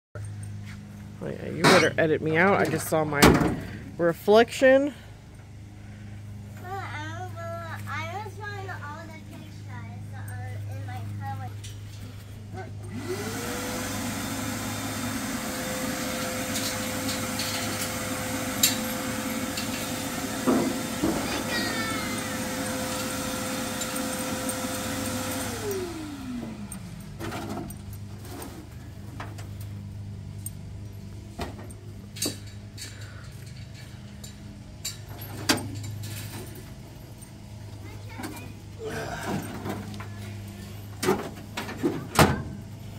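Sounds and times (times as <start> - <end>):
shop vacuum motor whine: 12.6 - 29.9.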